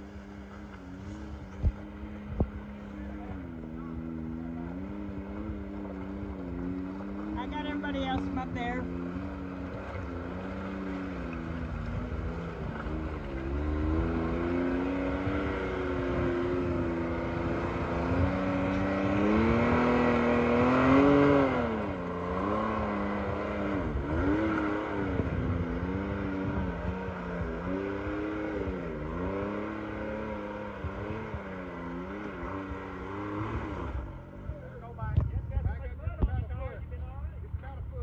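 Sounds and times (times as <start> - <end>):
off-road vehicle engine revving: 0.0 - 38.0.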